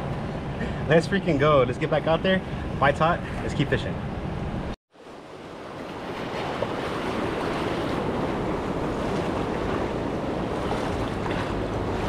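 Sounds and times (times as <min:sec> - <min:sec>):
surf washing against rocks: 0:04.9 - 0:12.0
wind buffeting microphone: 0:05.6 - 0:12.0.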